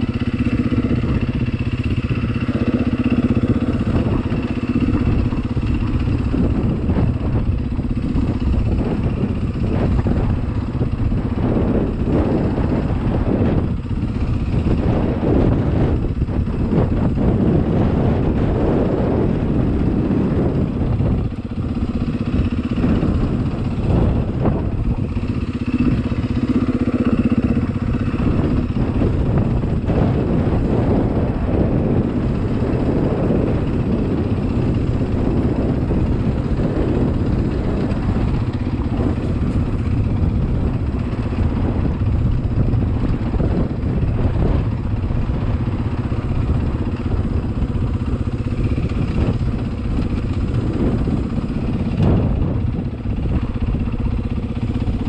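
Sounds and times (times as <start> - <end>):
dirt bike engine running: 0.0 - 55.0.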